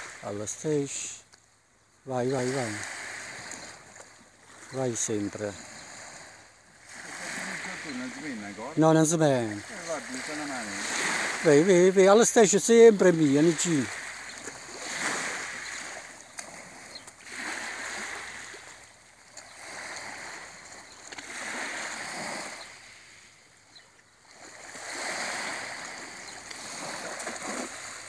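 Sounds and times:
waves washing onto pebbly shore: 0.0 - 1.2, 2.1 - 23.3, 24.3 - 28.0
cast net splashing into water: 26.6 - 28.0.

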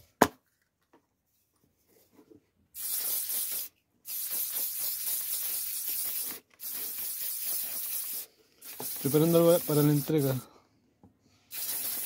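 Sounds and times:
spray lacquer hissing: 2.8 - 10.4, 11.5 - 12.0.

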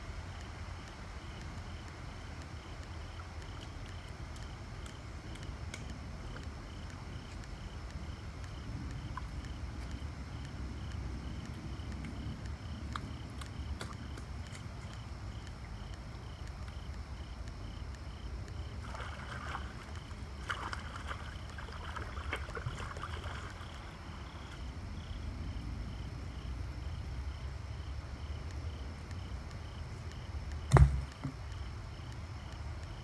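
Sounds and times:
loud thump: 30.7 - 31.4.

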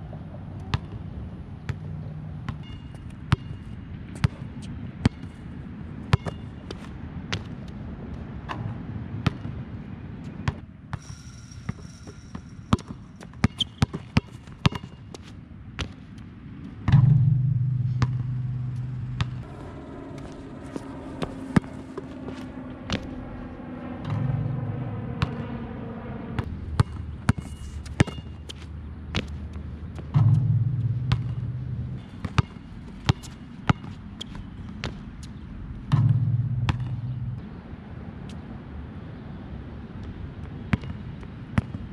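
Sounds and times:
basketballs bouncing on a court: 1.7 - 5.3, 11.7 - 15.0, 16.8 - 19.5, 26.8 - 35.0, 35.9 - 37.2
loud low hum: 16.5 - 33.6, 35.4 - 39.3
basketball bouncing on hard court: 16.9 - 19.5, 30.0 - 34.0, 35.9 - 37.2.

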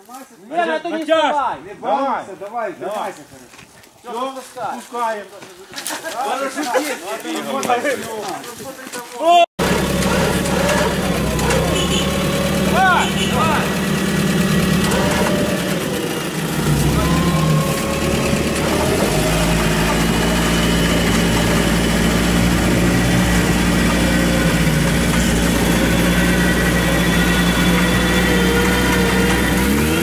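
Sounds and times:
off-road vehicle engine revving: 9.6 - 30.0.

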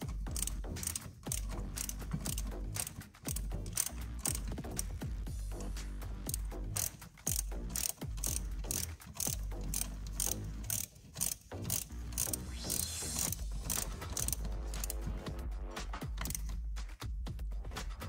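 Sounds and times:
ratchet wrench clicking: 0.0 - 16.6.

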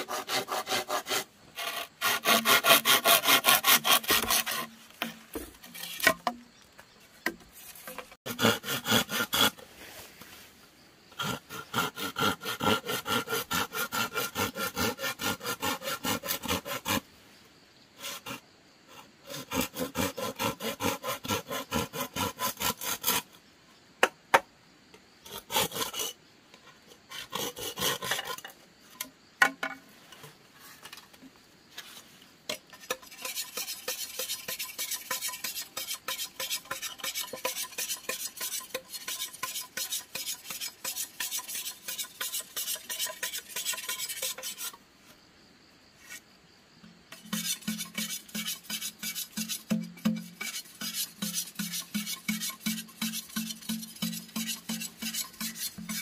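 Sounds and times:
hand tool rasping: 0.0 - 6.4, 7.6 - 9.6, 11.2 - 17.0, 32.8 - 44.8, 47.1 - 56.0.

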